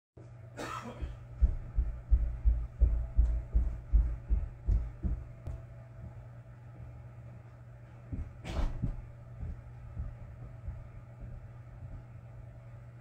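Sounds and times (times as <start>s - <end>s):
steady low hum: 0.2s - 13.0s
low dull thumps: 1.2s - 7.0s, 8.1s - 12.2s.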